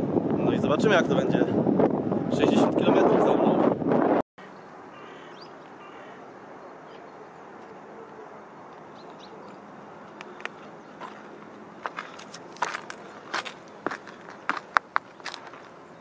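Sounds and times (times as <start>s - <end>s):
faint bird chirps: 4.4s - 8.2s
soft outdoor hiss: 4.4s - 16.0s
light clicks and crunches: 8.7s - 15.8s.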